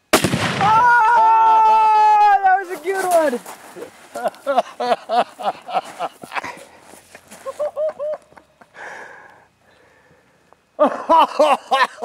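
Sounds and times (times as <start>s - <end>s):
man laughing and whooping: 0.6s - 3.4s, 4.1s - 6.7s, 7.3s - 8.8s, 10.8s - 12.0s.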